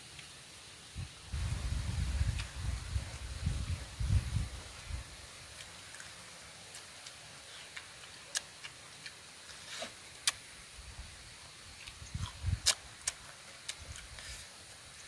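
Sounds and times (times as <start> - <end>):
person chewing with mouth clicks: 5.6 - 10.4, 11.8 - 14.4.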